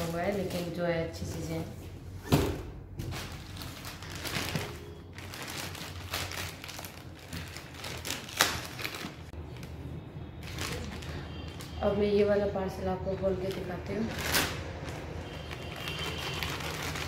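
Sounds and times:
packaging rustling and crinkling: 0.0s - 1.7s, 3.0s - 9.8s, 10.4s - 11.7s, 13.4s - 17.0s.

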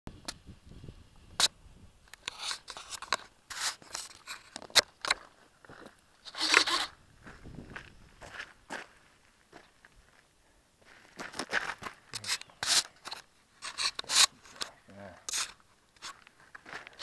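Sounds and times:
scraping and clicking of model plane: 2.1s - 5.2s, 6.3s - 6.9s, 12.1s - 14.7s, 15.3s - 17.0s
footsteps on gravel: 3.8s - 14.7s, 15.4s - 17.0s.

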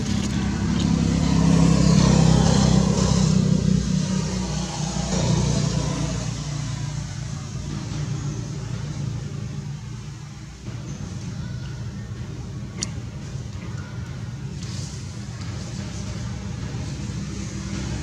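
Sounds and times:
small motorbike engine passing: 0.0s - 7.2s.

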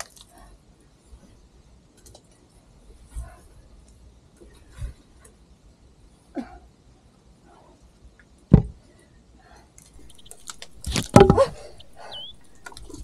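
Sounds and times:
snake knocking against camera: 10.0s - 13.0s
dull thump: 10.3s - 13.0s.

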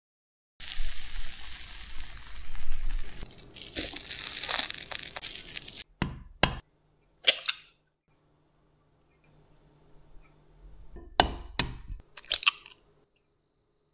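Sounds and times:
egg sizzling in frying pan: 0.6s - 5.9s
egg cracking: 0.7s - 6.6s, 11.1s - 12.8s
omelette crust crunching: 3.2s - 5.9s.

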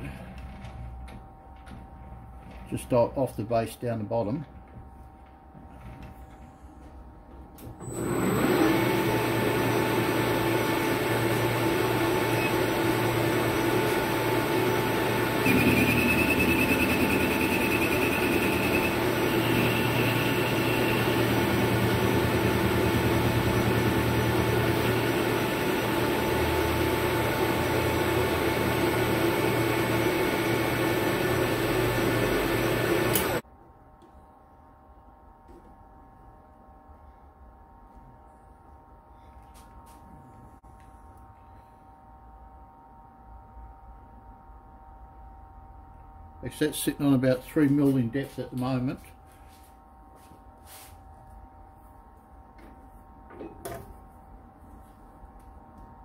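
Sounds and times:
metal lathe running: 7.8s - 33.4s
high wavering squeal: 14.7s - 21.6s.

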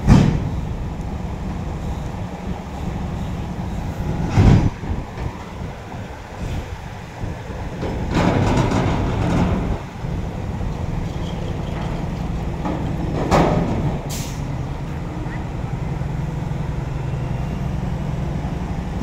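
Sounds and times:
diesel engines running: 0.0s - 19.0s.

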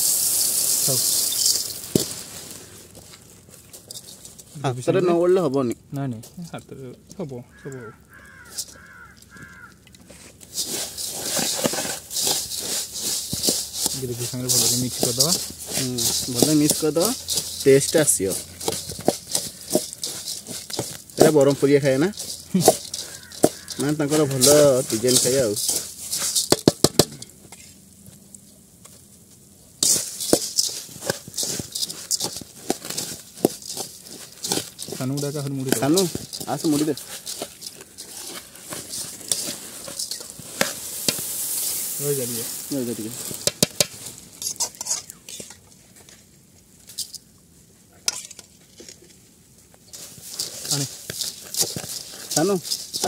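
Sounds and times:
puffed rice rattling in metal bowl: 0.0s - 46.2s, 49.7s - 53.0s
bird calling: 7.4s - 9.8s, 22.4s - 25.0s.

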